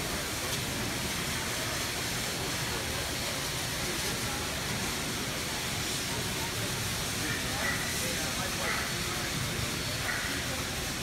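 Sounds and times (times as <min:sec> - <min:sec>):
crowd chatter: 0:00.0 - 0:11.0.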